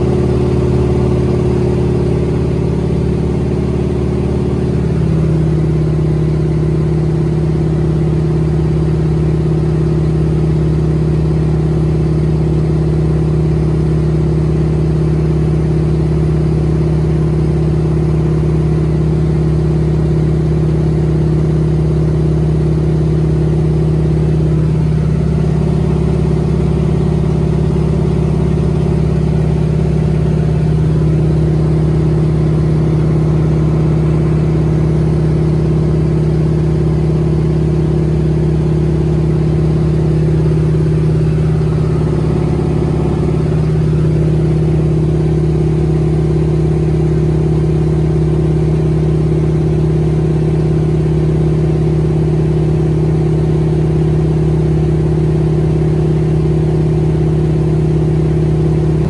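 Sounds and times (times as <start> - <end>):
propeller plane engine droning: 23.4 - 49.8.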